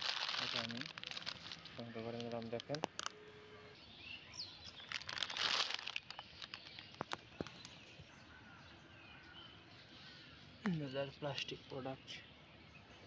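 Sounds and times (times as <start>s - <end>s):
plastic bag crinkling: 0.0s - 3.1s, 4.7s - 7.4s.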